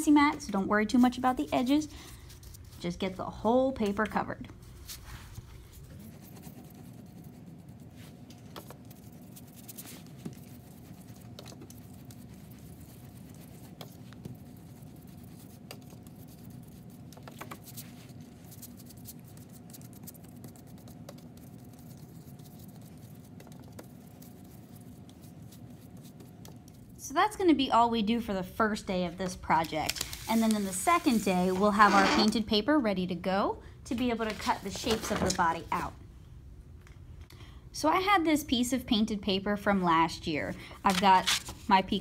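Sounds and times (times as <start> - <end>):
room hum: 0.0 - 42.0
paintbrush swishing on paper: 4.6 - 26.9, 29.9 - 32.0.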